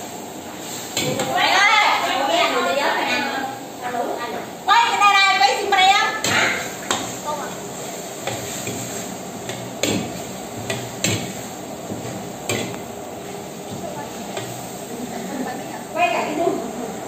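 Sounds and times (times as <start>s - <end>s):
frying hiss: 0.0s - 17.0s.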